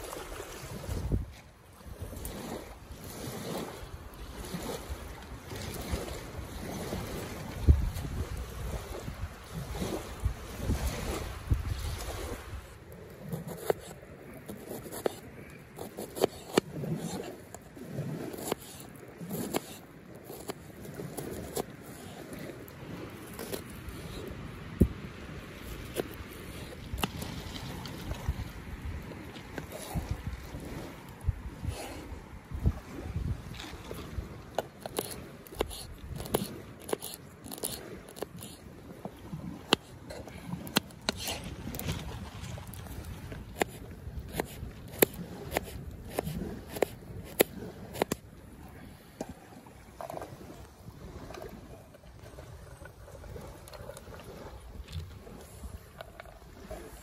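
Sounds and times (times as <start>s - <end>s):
knife cutting onion: 15.8s - 17.3s, 18.3s - 20.6s, 34.8s - 38.6s, 43.5s - 48.2s
low wind rumble: 20.2s - 57.0s
vegetables crunching: 34.8s - 38.6s.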